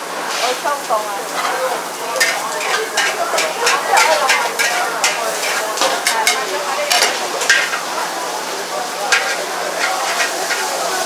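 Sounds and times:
noodles sizzling in a wok: 0:00.0 - 0:11.0
metal ladle clanking against wok: 0:01.4 - 0:08.0, 0:09.1 - 0:11.0.

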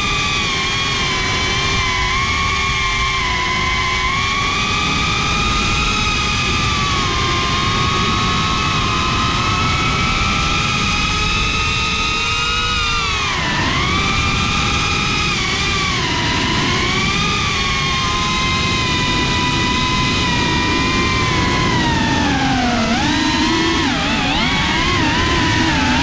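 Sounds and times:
quadcopter motors whining: 0:00.0 - 0:26.0
wind noise: 0:00.0 - 0:26.0.

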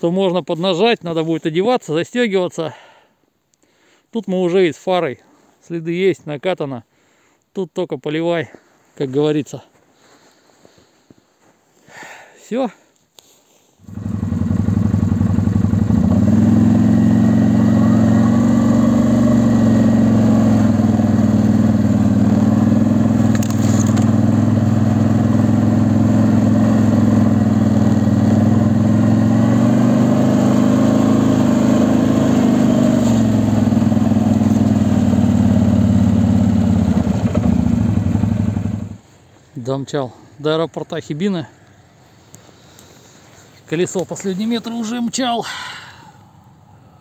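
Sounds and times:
atv engine running: 0:13.9 - 0:39.0.

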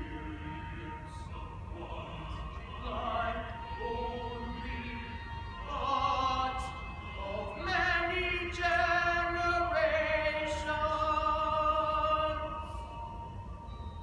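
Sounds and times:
voices singing held notes: 0:00.0 - 0:14.0.

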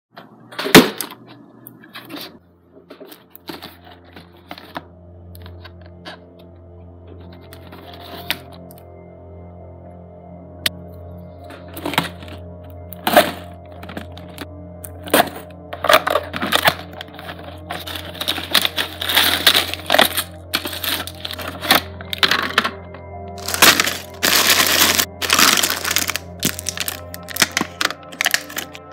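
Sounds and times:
plastic bags crinkling: 0:15.2 - 0:22.8, 0:23.4 - 0:28.9
cardboard box being opened: 0:23.4 - 0:28.7.

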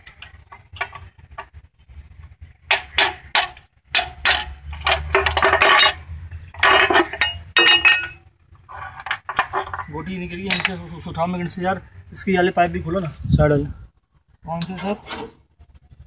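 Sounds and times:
metal tools clinking on engine parts: 0:02.7 - 0:11.0.

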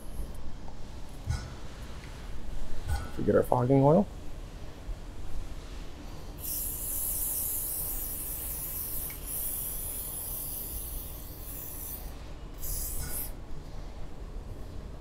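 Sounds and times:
aerosol can spraying: 0:06.4 - 0:13.3.

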